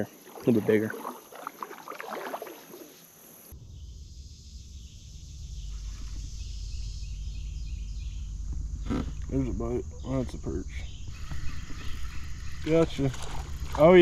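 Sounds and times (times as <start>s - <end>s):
insects chirping: 0.0s - 14.0s
water dripping off paddle: 0.2s - 2.8s, 12.6s - 13.9s.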